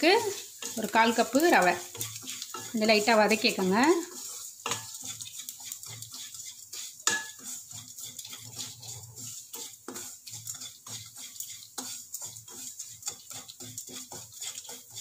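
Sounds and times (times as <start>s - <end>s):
wooden spatula scraping pan: 0.0s - 15.0s
spatula knock: 7.0s - 7.4s.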